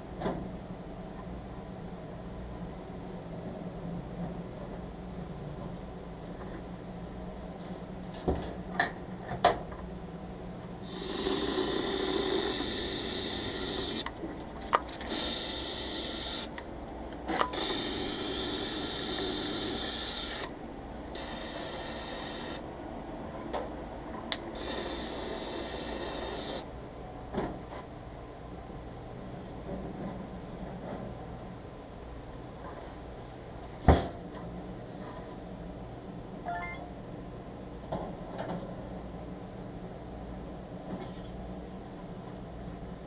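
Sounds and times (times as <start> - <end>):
compressed-air gun hissing: 10.8 - 14.1, 15.1 - 16.5, 21.2 - 22.6, 24.6 - 26.6.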